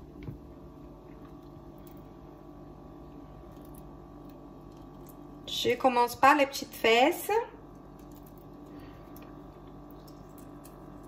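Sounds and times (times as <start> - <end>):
low hum: 0.0 - 11.0
eggshell crackling: 3.0 - 5.5, 7.6 - 11.0.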